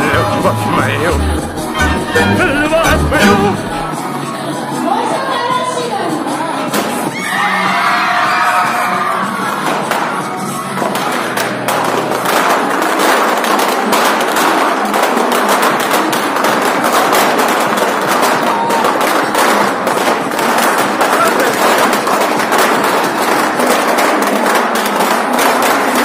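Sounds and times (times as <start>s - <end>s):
balloons popping: 0.0s - 3.9s, 10.8s - 26.0s.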